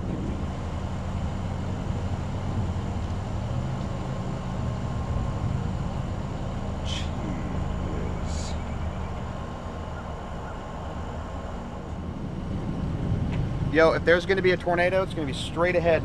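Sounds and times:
rushing noise: 0.0s - 16.0s
vehicle engine humming: 0.0s - 16.0s
high chirp: 6.9s - 9.3s.

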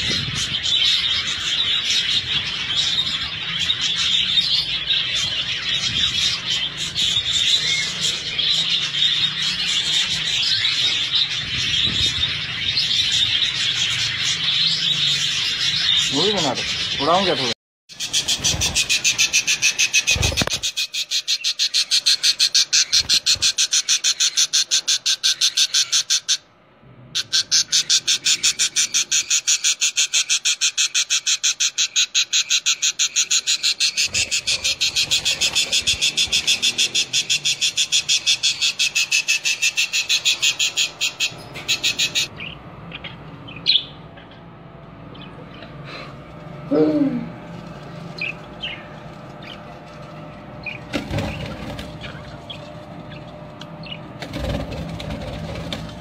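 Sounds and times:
bird chick begging chirps: 17.9s - 26.5s, 27.2s - 44.5s.

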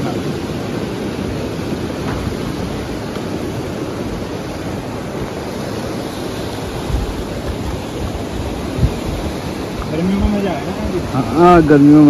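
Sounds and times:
waterfall rushing: 0.0s - 12.0s
low thump: 2.0s - 2.6s.

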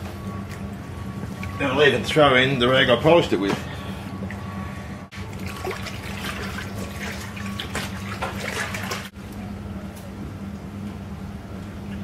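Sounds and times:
water sloshing in tub: 3.4s - 9.2s.

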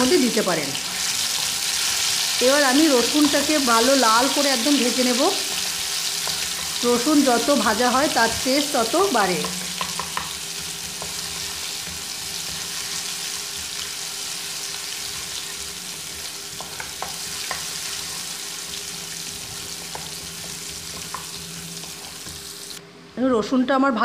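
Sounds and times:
garlic sizzling in hot oil: 0.0s - 22.8s
wooden spatula knocking against pan: 9.3s - 10.4s.

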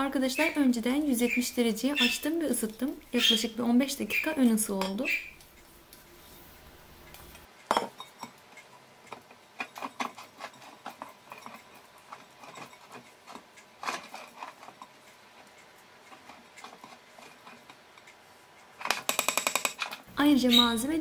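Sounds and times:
spatula tapping pan: 4.0s - 5.5s
spatula spreading batter: 8.6s - 18.1s.

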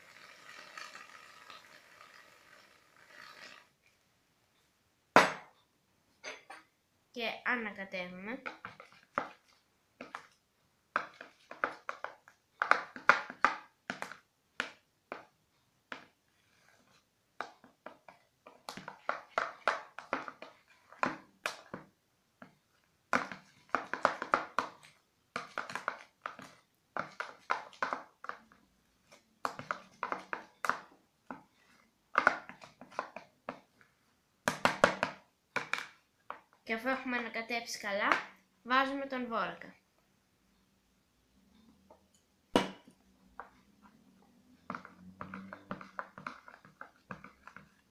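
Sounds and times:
metal spoon scraping plastic bowl: 0.0s - 3.8s, 16.0s - 21.2s, 23.2s - 33.2s, 43.4s - 47.9s.

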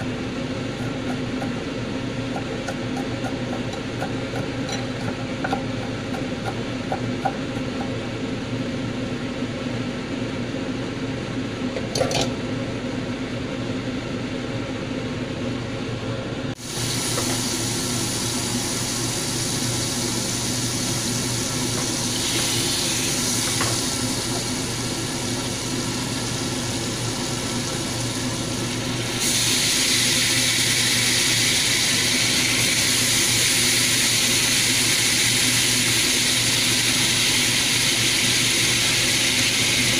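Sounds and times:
steady low hum: 0.0s - 33.5s
sizzling in a frying pan: 16.6s - 39.9s.

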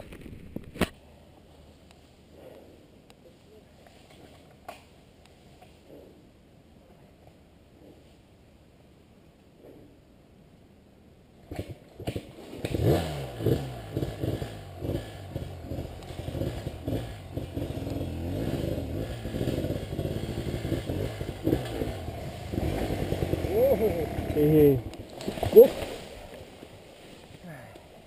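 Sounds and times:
dirt bike engines revving: 12.7s - 26.0s.

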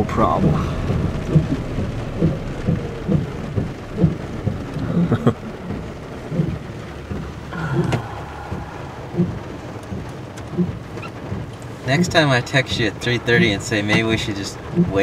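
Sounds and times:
heavy rain on truck roof: 0.0s - 15.0s
dull thuds: 0.2s - 11.5s.

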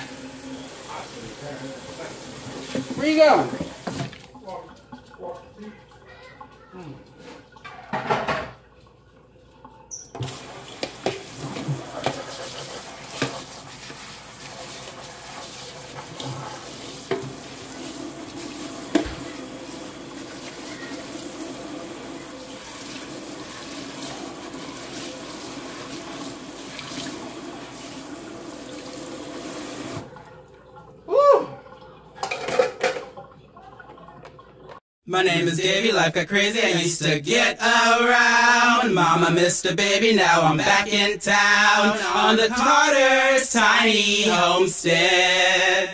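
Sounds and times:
tap water running into sink: 0.0s - 6.6s, 7.5s - 30.9s
knocks in sink: 18.9s - 19.3s.

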